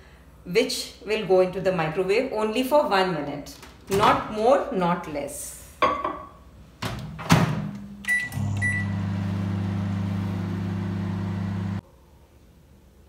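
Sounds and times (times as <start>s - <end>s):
microwave oven humming: 8.0s - 11.8s
keypad beeps: 8.1s - 8.9s.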